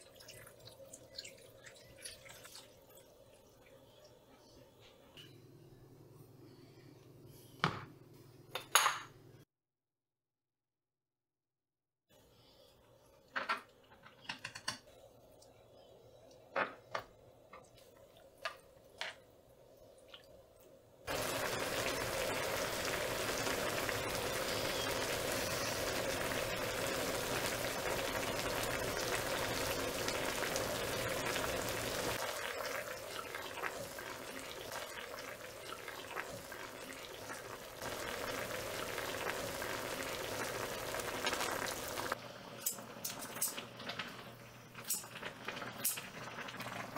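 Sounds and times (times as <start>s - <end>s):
broth boiling and bubbling: 0.0s - 4.3s, 17.4s - 46.9s.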